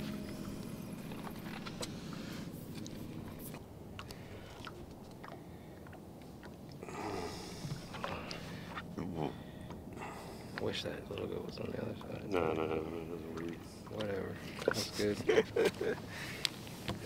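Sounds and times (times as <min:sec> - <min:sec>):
hands handling fish and rod: 0:00.0 - 0:05.4
low background rumble: 0:00.0 - 0:17.0.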